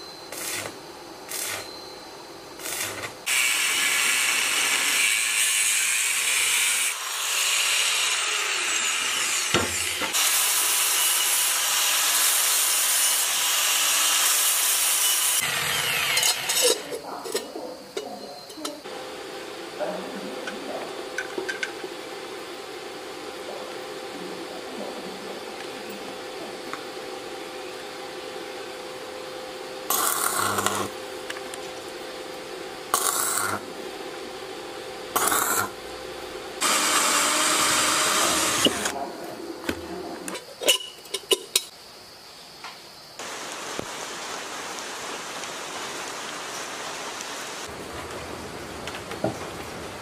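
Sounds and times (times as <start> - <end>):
steady hiss: 0.0 - 17.6, 41.1 - 50.0
electric arc welding: 0.3 - 1.7, 2.6 - 16.8, 29.8 - 31.3, 32.9 - 33.8, 35.1 - 39.0
drill boring through sheet metal: 2.6 - 16.7, 29.9 - 30.9, 32.9 - 33.7, 35.2 - 35.8, 36.6 - 39.0.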